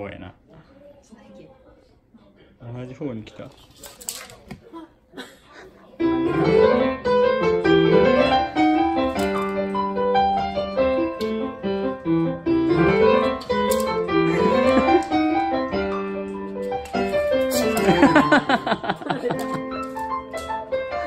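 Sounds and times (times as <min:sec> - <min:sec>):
piano melody: 0:06.0 - 0:21.0.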